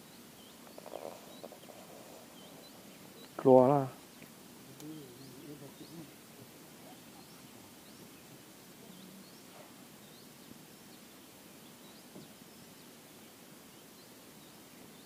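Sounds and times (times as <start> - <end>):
high rising bird chirps: 0.0 - 3.4
soft steady hiss: 0.0 - 15.0.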